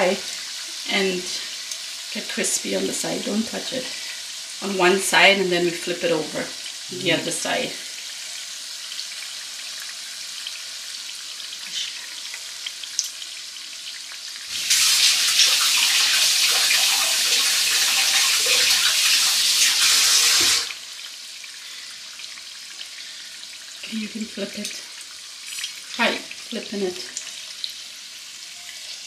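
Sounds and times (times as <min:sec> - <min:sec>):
food sizzling in hot oil: 0:00.0 - 0:29.0.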